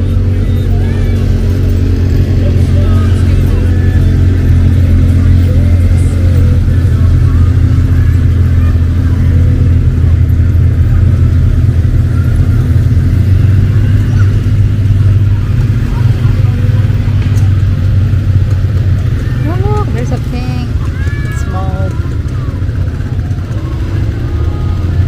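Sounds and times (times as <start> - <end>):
atv engines passing: 0.0 - 25.0
faint voices: 0.0 - 25.0.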